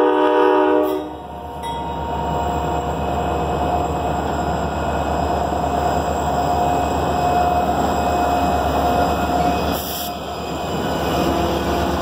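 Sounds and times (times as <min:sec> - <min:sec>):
diesel locomotives rumbling: 0:00.0 - 0:12.0
steady high tone: 0:01.0 - 0:04.7.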